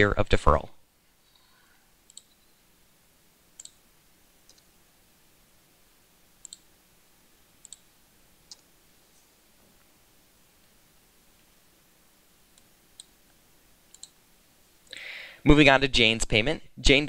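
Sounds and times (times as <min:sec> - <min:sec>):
computer mouse clicks: 0:01.4 - 0:02.4, 0:03.6 - 0:03.8, 0:04.4 - 0:04.7, 0:06.4 - 0:06.7, 0:07.6 - 0:07.9, 0:08.5 - 0:08.7, 0:12.5 - 0:13.2, 0:13.9 - 0:14.2.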